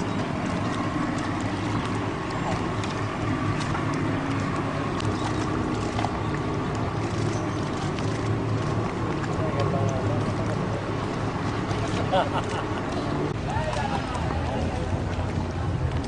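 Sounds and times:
low engine hum: 0:00.0 - 0:16.0
crowd murmur: 0:08.8 - 0:16.0.

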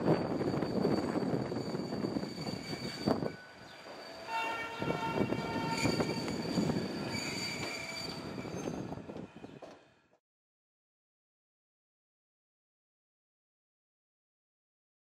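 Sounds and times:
train rumbling: 0:00.0 - 0:10.2.

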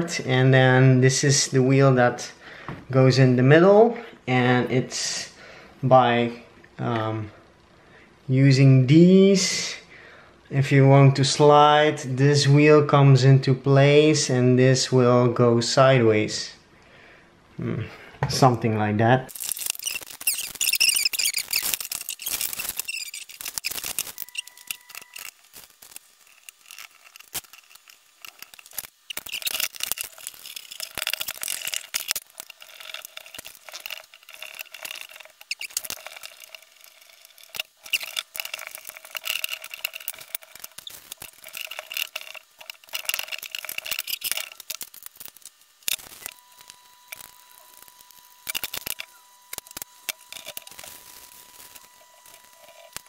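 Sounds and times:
screwdriver squeaking and scraping: 0:19.3 - 0:53.0.

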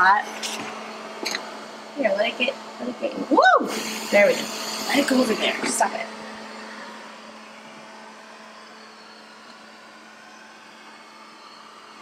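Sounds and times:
robot vacuum motor hum: 0:02.2 - 0:08.2.

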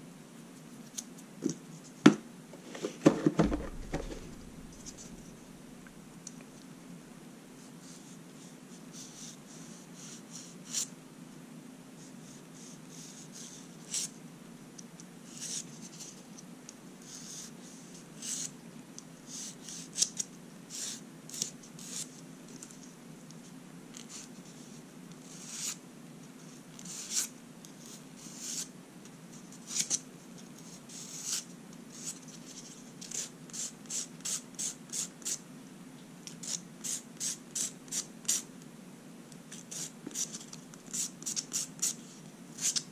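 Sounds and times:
low microphone hum: 0:02.5 - 0:06.2.

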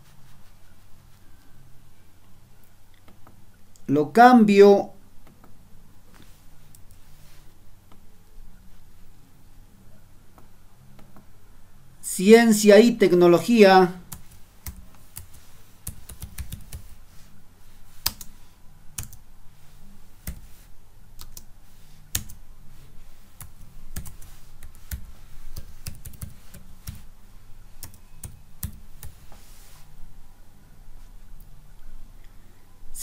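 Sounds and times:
faint low hum: 0:00.0 - 0:33.0
typing on computer keyboard: 0:14.1 - 0:16.9, 0:19.0 - 0:19.2, 0:23.4 - 0:27.0.

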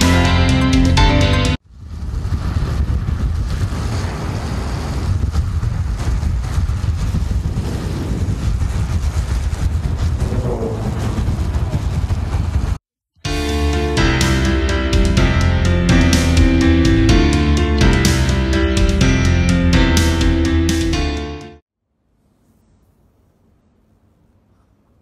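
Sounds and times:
wind buffeting microphone: 0:01.6 - 0:12.8
wheels rolling on asphalt: 0:01.7 - 0:12.8.

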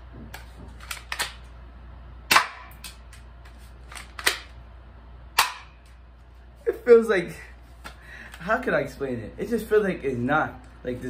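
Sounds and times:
toy pistol shots snapping: 0:02.3 - 0:03.0, 0:04.0 - 0:04.5, 0:05.4 - 0:05.8.

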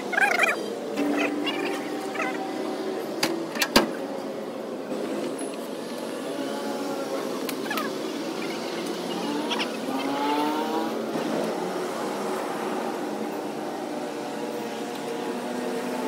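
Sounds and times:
vehicle engine revving: 0:05.9 - 0:16.0.

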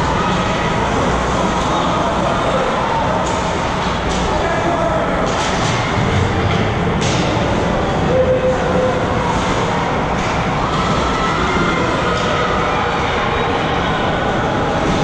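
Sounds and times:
rumbling ice arena ambience: 0:00.0 - 0:15.0.

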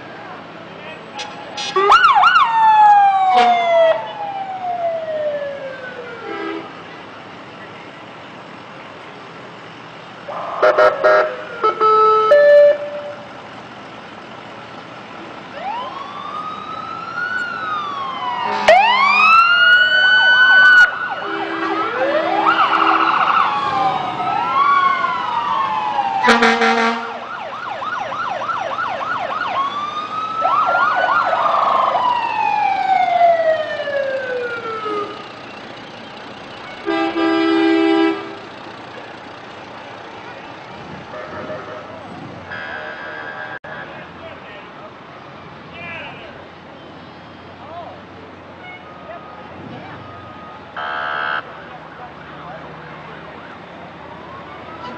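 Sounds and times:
emergency vehicle sirens wailing: 0:00.0 - 0:54.9
short horn blasts: 0:26.3 - 0:27.2, 0:36.8 - 0:38.4.

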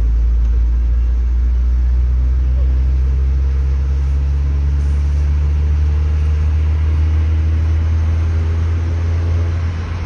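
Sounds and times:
car driving interior rumble: 0:00.0 - 0:10.0.

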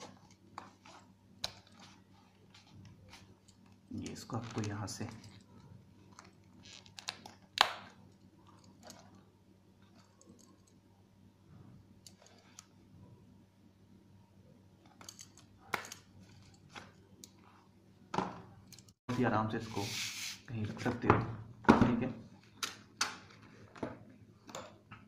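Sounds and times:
leather holster rubbing and rustling: 0:00.0 - 0:07.4.

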